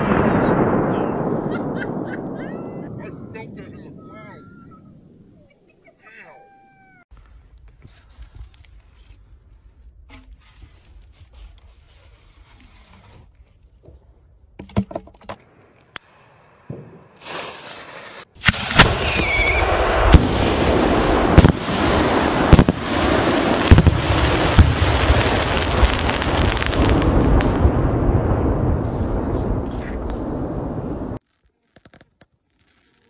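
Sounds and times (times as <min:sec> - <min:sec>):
firework crackling: 0:16.5 - 0:33.0
firework bang: 0:18.4 - 0:31.2.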